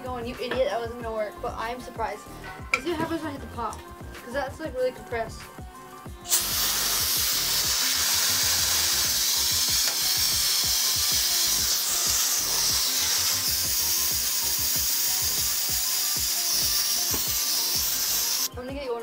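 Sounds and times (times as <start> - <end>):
air hissing from nozzle: 6.2 - 18.5.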